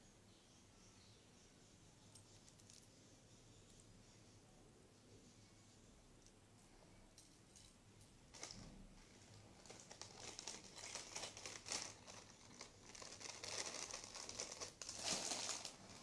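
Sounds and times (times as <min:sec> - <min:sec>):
small clicks of jewellery pieces: 0:02.1 - 0:02.9
plastic packets crinkling: 0:08.3 - 0:16.0.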